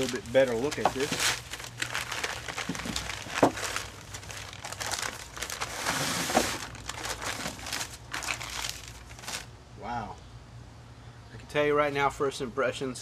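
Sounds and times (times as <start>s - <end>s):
paper crinkling and rustling: 0.0s - 9.5s.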